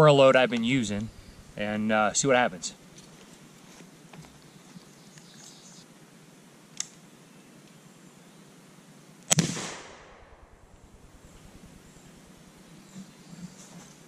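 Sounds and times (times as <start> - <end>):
rifle shot with ringing tail: 9.3 - 12.4.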